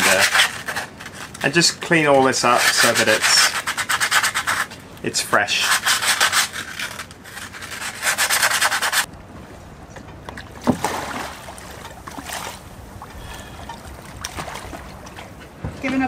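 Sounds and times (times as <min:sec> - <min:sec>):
sandpaper rubbing on metal: 0:00.0 - 0:04.7, 0:05.4 - 0:09.1
person splashing into water: 0:10.6 - 0:15.0.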